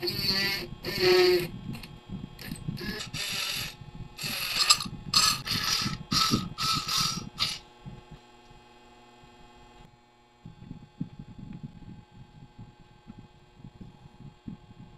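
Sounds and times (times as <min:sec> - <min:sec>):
metal parts scraping: 0:00.0 - 0:07.6
faint hum: 0:00.0 - 0:14.9.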